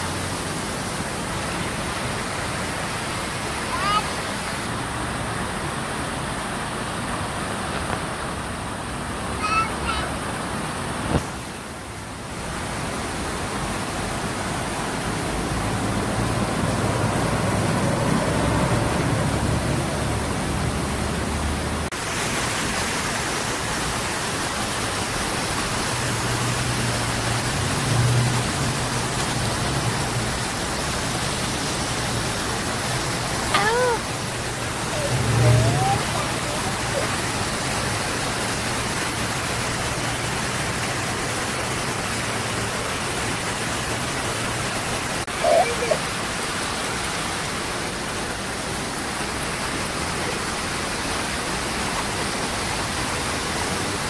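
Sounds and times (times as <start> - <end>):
outdoor noise hiss: 0.0 - 54.0
traffic: 0.0 - 54.0
vehicle engine low hum: 34.2 - 36.6.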